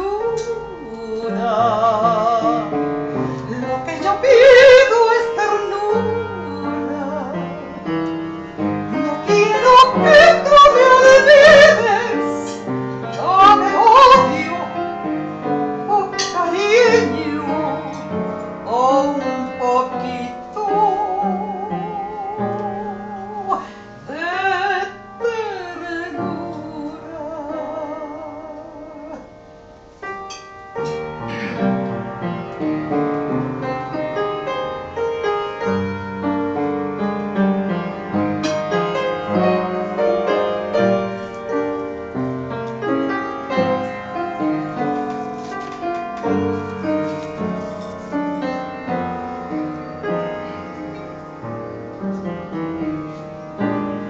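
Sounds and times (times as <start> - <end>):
soprano singing with vibrato: 0.0 - 8.0, 8.8 - 29.4
piano accompaniment: 0.0 - 54.0.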